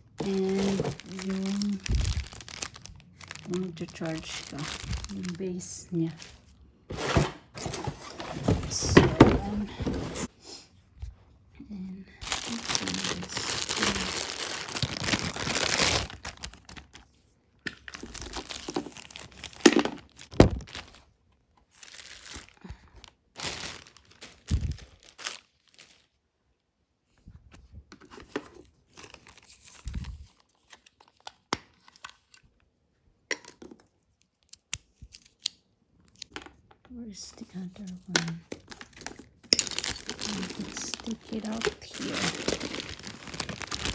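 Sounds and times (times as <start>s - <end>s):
packaging crinkling: 0.0s - 10.3s, 12.2s - 17.1s, 17.8s - 21.1s, 21.7s - 26.1s, 38.5s - 43.9s
packaging ripping: 0.2s - 5.4s, 12.2s - 17.0s, 17.9s - 21.0s, 21.8s - 22.6s, 23.4s - 26.1s, 38.7s - 43.9s.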